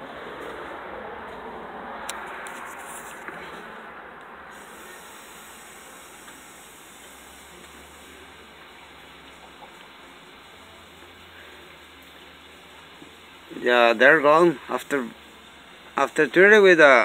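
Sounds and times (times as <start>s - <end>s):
steady hiss: 4.4s - 17.0s.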